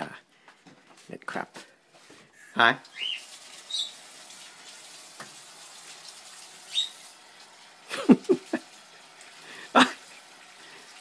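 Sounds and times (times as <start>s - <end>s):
tap water running into sink: 2.8s - 11.0s.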